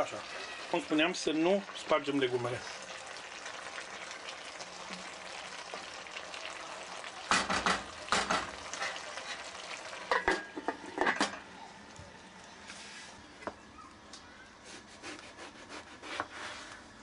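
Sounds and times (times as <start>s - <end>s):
food sizzling in a pot: 0.0s - 13.5s
wooden spoon scraping a pot: 14.7s - 16.9s.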